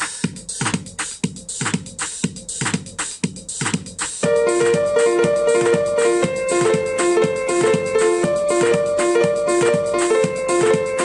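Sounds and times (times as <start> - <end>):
drum-machine beat: 0.0 - 11.0
repeating keyboard melody: 4.2 - 11.0.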